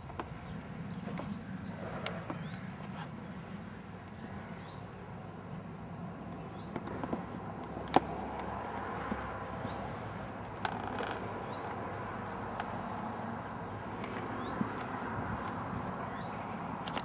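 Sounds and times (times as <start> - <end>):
small bird singing: 0.0 - 17.0.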